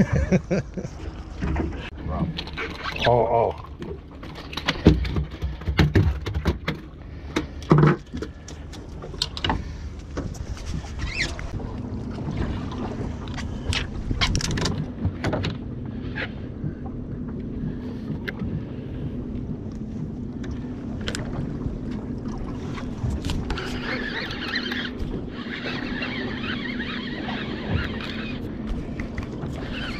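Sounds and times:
low hum: 0.0s - 29.9s
fish flopping on boat deck: 17.5s - 29.9s.

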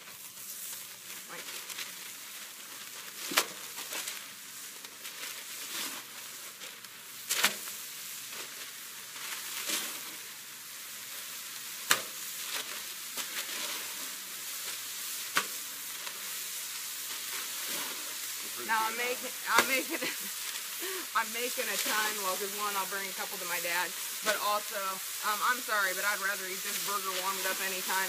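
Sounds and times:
beef patties sizzling on griddle: 0.0s - 28.0s
patties slapping onto griddle: 0.1s - 18.6s, 19.5s - 20.8s.

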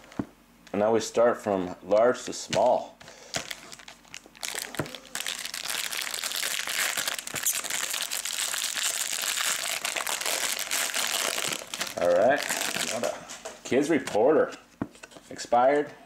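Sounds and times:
foil wrapper crinkling: 3.2s - 13.1s.

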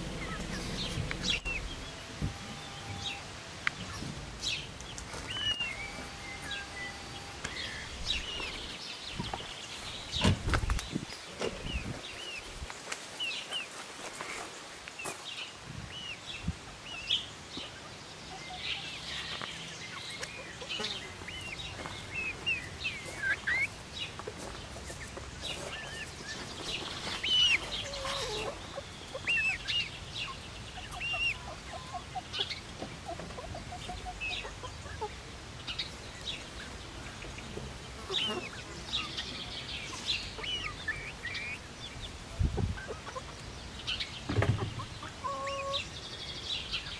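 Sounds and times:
chicks peeping and chirping: 0.0s - 46.9s
chicken clucks: 18.2s - 35.2s, 36.6s - 45.9s.

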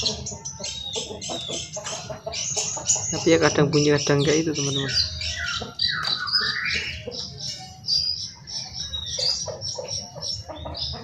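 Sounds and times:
birds chirping and squawking: 0.0s - 11.0s
rising whistled bird call: 4.8s - 7.0s.

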